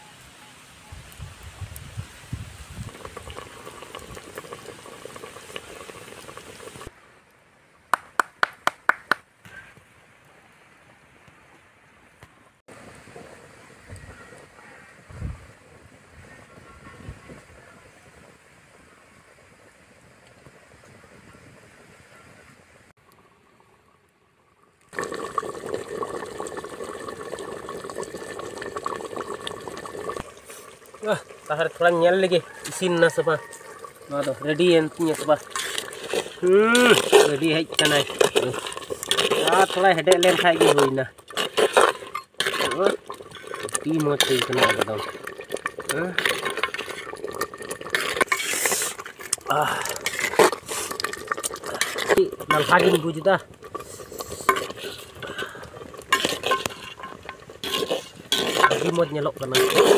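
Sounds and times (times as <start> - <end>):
fire crackling: 0.2 - 59.9
curry bubbling in a pot: 1.8 - 7.0, 23.0 - 59.9
sharp hand claps: 7.9 - 9.3.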